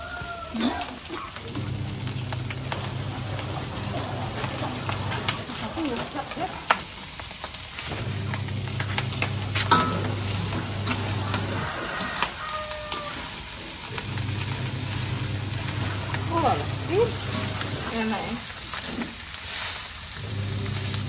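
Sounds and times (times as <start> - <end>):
rice sizzling in a wok: 0.0 - 21.0
metal spatula scraping wok: 2.8 - 6.8, 7.8 - 21.0
spatula clinking on wok: 9.7 - 11.0.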